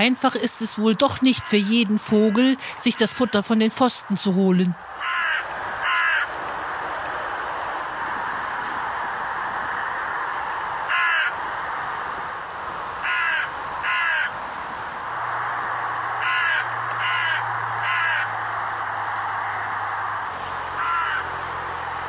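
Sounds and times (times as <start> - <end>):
steady background hiss: 0.0 - 22.0
crow cawing: 1.2 - 3.6, 4.9 - 6.4, 10.8 - 11.5, 13.0 - 14.4, 16.1 - 19.8, 20.7 - 21.5.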